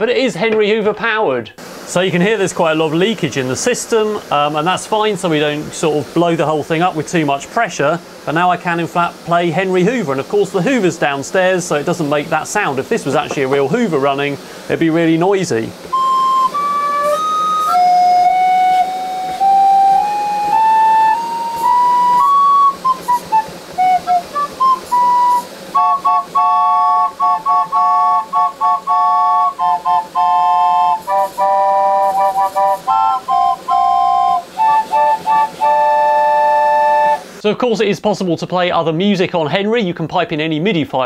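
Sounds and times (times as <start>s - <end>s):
pipe organ notes and chords: 15.8s - 37.2s.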